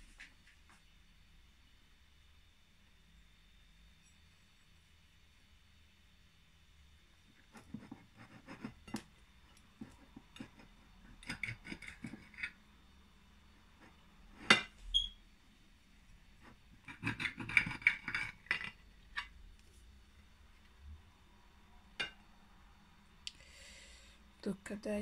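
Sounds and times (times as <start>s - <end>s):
cake server scraping a plate: 9.8s - 12.6s.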